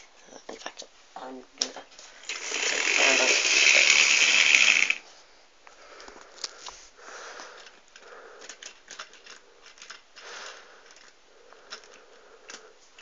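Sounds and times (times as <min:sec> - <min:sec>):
plastic model wagons clicking: 0:02.2 - 0:05.0, 0:07.5 - 0:13.0.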